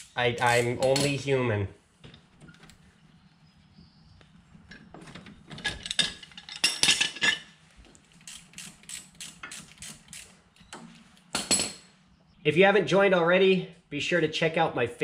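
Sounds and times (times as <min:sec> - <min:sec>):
metal tools clinking and knocking: 0:04.6 - 0:07.6, 0:10.8 - 0:11.9
ratchet wrench clicking: 0:08.2 - 0:10.4.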